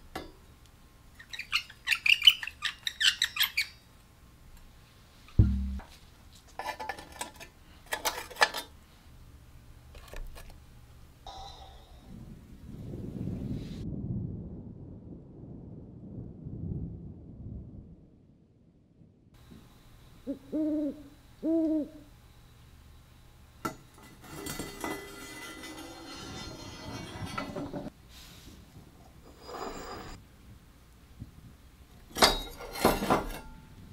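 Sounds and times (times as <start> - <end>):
steel parts set on wooden bench: 5.4 - 8.8, 23.6 - 27.9, 32.1 - 33.6.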